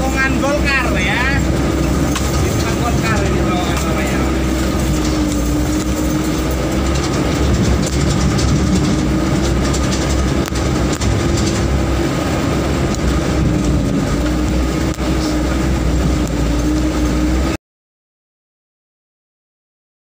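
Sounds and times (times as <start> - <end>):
vehicle body rattling and knocking: 0.0 - 17.5
vehicle engine droning: 0.0 - 17.6.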